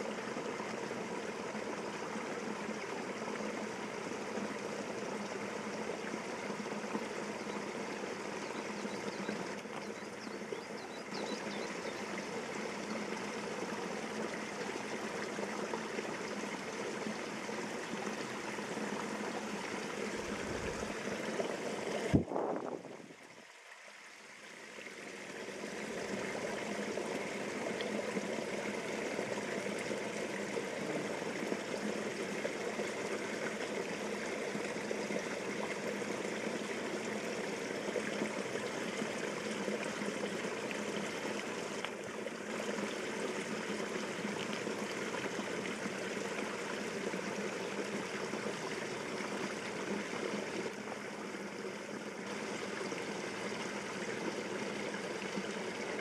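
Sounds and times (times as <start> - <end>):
stream water flowing: 0.0 - 56.0.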